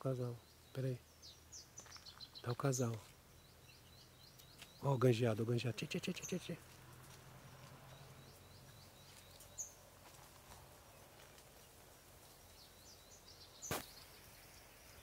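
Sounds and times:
bird song with high repeated notes: 0.0s - 6.6s, 7.6s - 9.8s, 12.3s - 15.0s
sharp knock: 13.7s - 13.9s.

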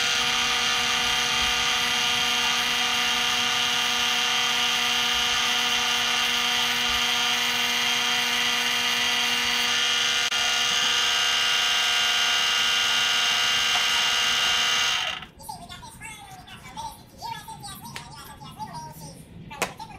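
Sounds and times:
lathe tool cutting metal: 0.0s - 15.3s
metal lathe motor whining: 0.0s - 15.3s.

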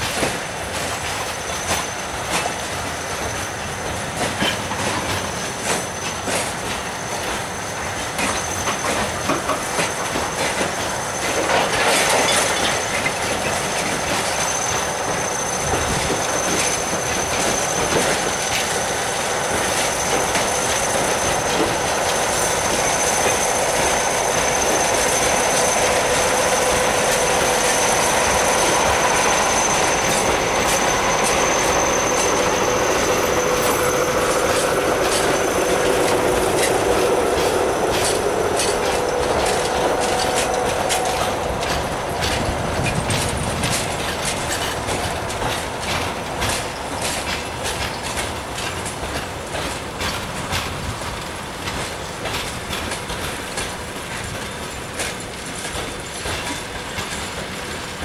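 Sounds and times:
train wheels squealing: 0.0s - 58.0s
wheel clicks over rail joints: 32.2s - 58.0s.

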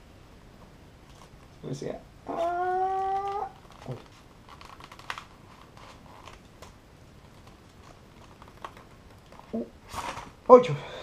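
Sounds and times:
rustling plastic packaging: 2.9s - 10.6s.

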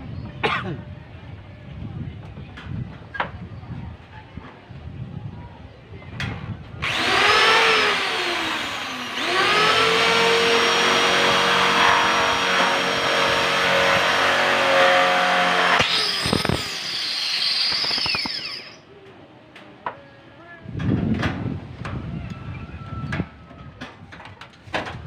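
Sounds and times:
electric drill boring into steel: 6.8s - 18.8s.

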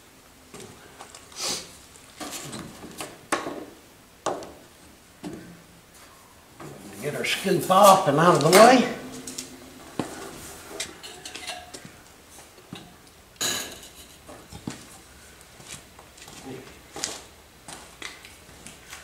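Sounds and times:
sharp clack: 7.8s - 11.8s.

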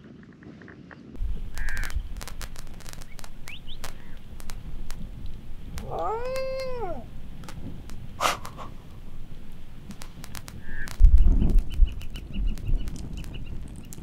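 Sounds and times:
dingo howling: 5.8s - 7.1s.

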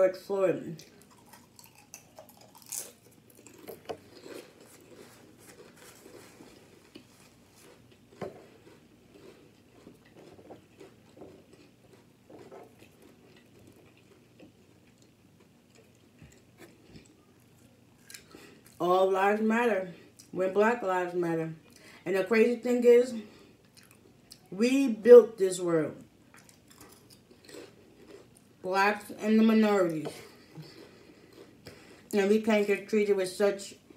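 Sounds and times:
person chewing potato chips: 0.8s - 18.8s, 23.4s - 24.5s, 26.3s - 28.6s, 30.2s - 32.2s.

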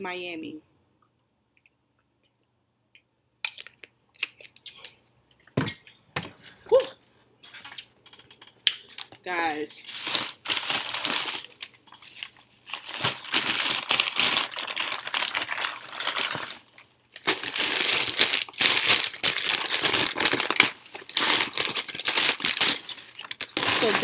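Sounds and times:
paper bag crinkling: 9.8s - 24.0s.

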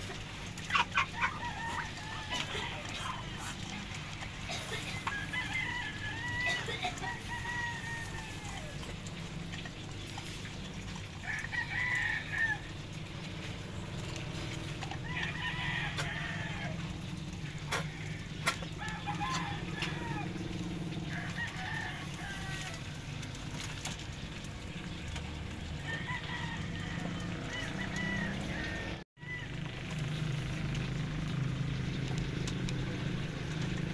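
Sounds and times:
roosters crowing: 0.2s - 10.3s, 11.0s - 23.8s, 25.3s - 31.5s
chicken clucking: 0.6s - 3.7s.

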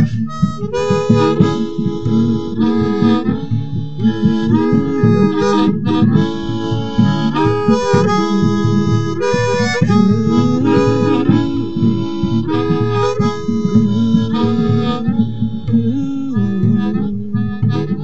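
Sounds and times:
reedy instrument playing chords: 0.0s - 18.0s.

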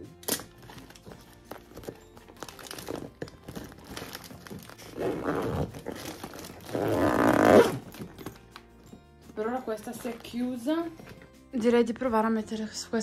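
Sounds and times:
plastic bag crinkling: 0.5s - 8.7s.

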